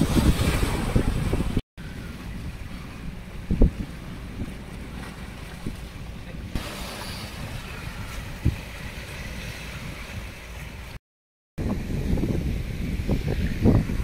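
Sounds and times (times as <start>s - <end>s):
waves washing against rocks: 0.0s - 1.6s, 3.7s - 10.9s
wind rumbling on microphone: 0.0s - 11.0s, 11.6s - 14.0s.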